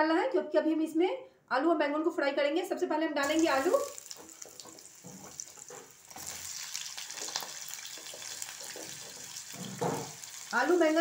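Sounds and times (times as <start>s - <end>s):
oil popping and crackling: 3.2s - 11.0s
potatoes sizzling in hot oil: 3.2s - 11.0s.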